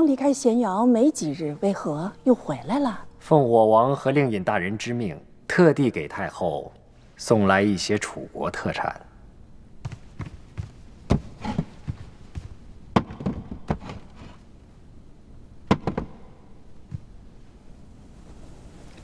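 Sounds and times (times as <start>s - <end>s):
objects knocking and thudding: 9.8s - 14.5s, 15.7s - 17.2s.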